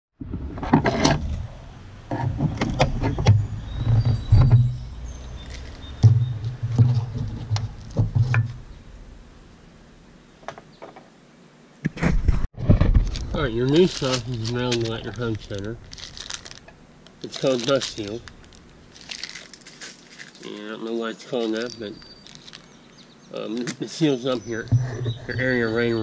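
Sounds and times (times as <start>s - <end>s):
putty rubbing and scraping: 0.2s - 8.7s, 11.9s - 20.6s, 23.6s - 26.0s
close handling noise: 5.4s - 8.8s, 11.8s - 20.6s, 21.2s - 25.2s
sharp knocks: 6.0s - 8.6s.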